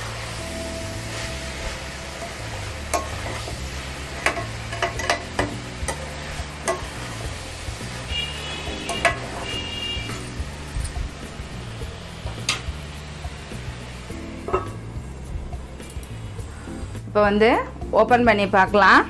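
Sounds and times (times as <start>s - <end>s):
vegetables sizzling in oil: 0.0s - 19.0s
metal spoon scraping a pan: 1.2s - 7.0s, 8.2s - 10.4s.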